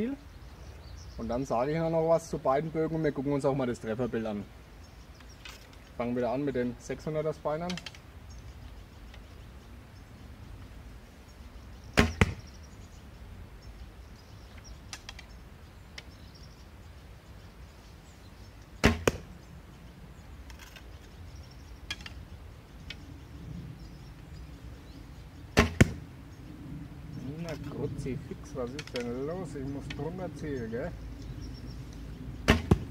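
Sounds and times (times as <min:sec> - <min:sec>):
arrow striking target: 0:12.0 - 0:12.5, 0:18.8 - 0:19.3, 0:25.5 - 0:26.0, 0:32.4 - 0:32.9.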